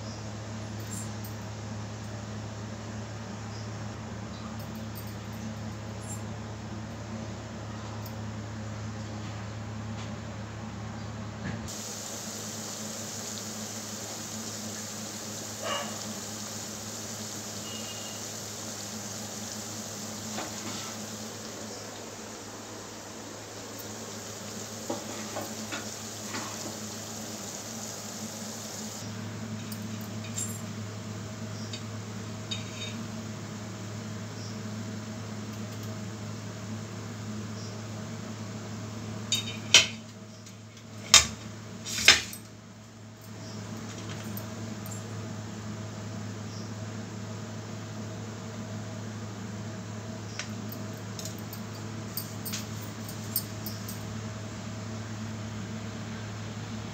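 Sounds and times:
steady low hum: 0:00.0 - 0:56.9
oil sizzling: 0:11.7 - 0:29.6.

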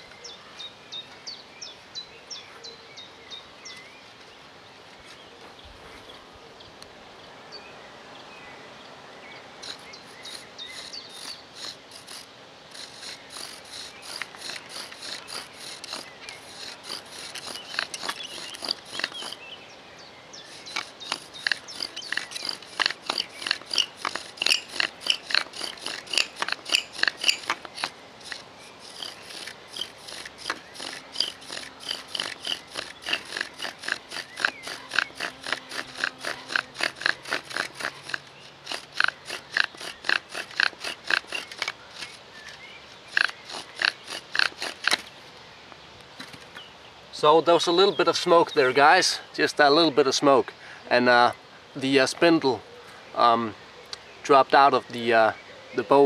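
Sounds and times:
wooden bow drill squeaking: 0:09.6 - 0:19.5, 0:20.4 - 0:45.1.

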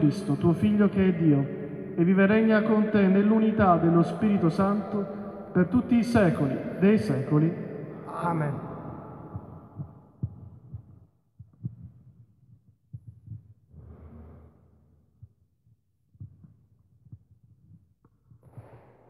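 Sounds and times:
soft low thumps: 0:08.6 - 0:19.0.

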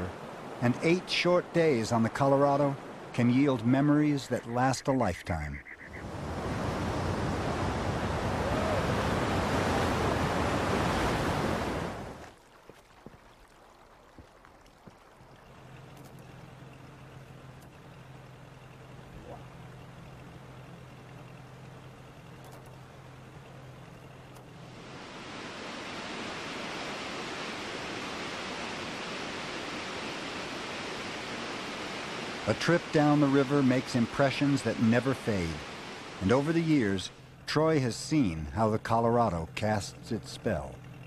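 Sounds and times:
low steady hum: 0:00.0 - 0:41.0
whitewater rapids roaring: 0:06.0 - 0:12.2, 0:24.7 - 0:37.9.

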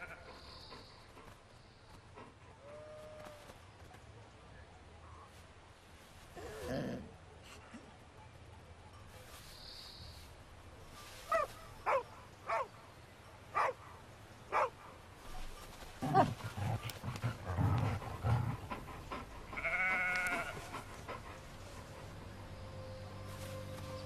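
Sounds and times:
dogs barking: 0:11.3 - 0:12.8, 0:13.4 - 0:15.0
dogs growling: 0:16.0 - 0:22.2.

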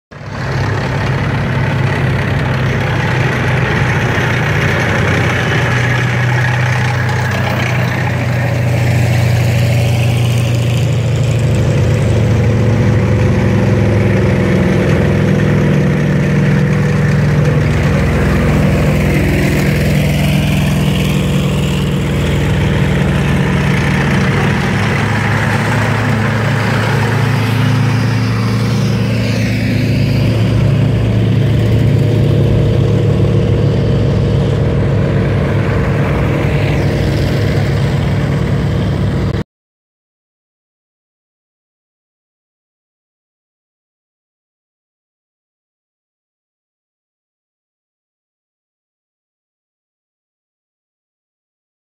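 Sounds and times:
tank engines driving past: 0:00.1 - 0:39.4.

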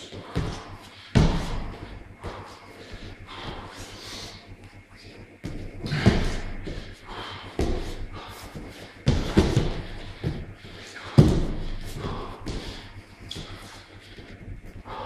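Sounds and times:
body thudding on foam mat: 0:01.2 - 0:02.4, 0:05.4 - 0:07.0, 0:07.6 - 0:10.5, 0:11.2 - 0:12.8.

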